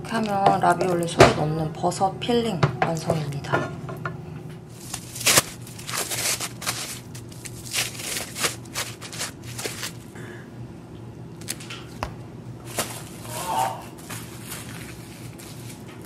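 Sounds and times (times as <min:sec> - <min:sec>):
plastic cling wrap crinkling: 0:04.7 - 0:10.1, 0:14.0 - 0:16.0.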